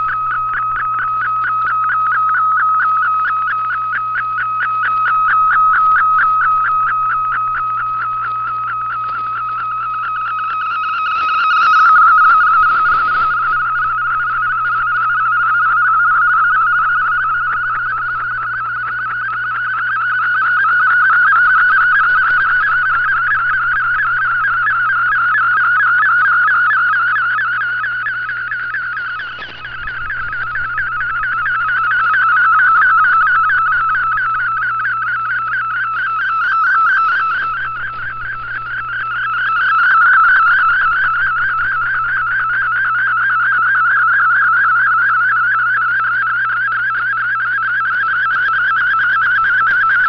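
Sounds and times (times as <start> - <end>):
steady low hum: 0.0 - 50.0
warbling digital data tone: 0.0 - 50.0.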